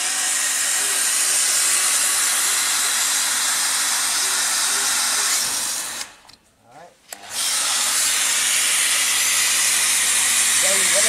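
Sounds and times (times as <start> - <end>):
pressure washer spraying water: 0.0 - 6.1, 7.4 - 11.0.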